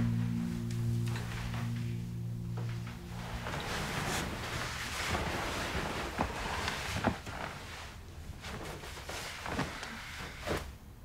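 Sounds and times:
bedding rustling: 0:02.6 - 0:11.0.

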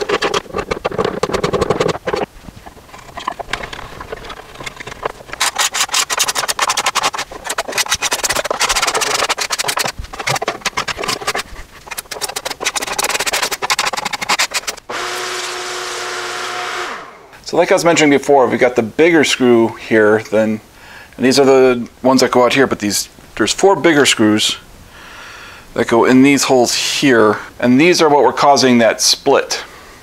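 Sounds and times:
hand tool scraping plywood: 0:00.0 - 0:17.0
steady hum: 0:00.0 - 0:17.8.

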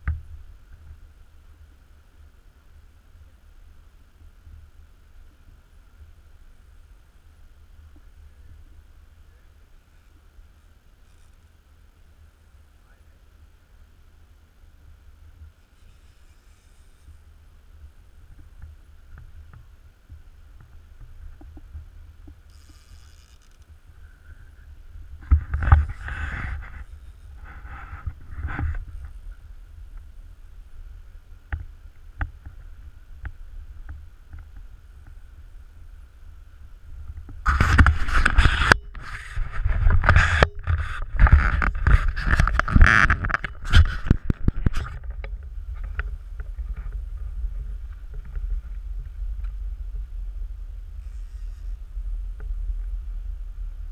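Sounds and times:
wind buffeting microphone: 0:23.8 - 0:53.9.

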